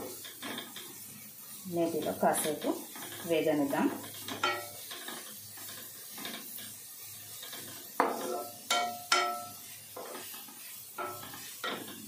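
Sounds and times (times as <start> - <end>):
food sizzling in a pan: 0.0 - 12.0
spoon clanking against pan: 4.0 - 6.7, 7.4 - 10.3, 11.0 - 12.0.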